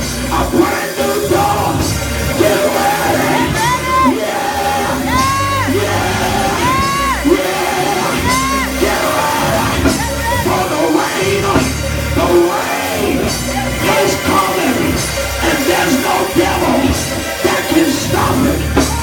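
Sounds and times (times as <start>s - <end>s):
live band with drums and keyboards: 0.0s - 19.0s
high rising and falling yells: 2.4s - 11.5s.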